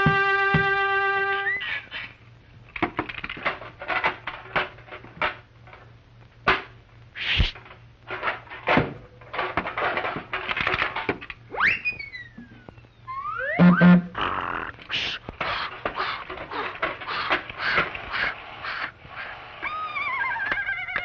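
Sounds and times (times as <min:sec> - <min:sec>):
swooping whistle: 0:11.6 - 0:12.4, 0:13.0 - 0:13.9.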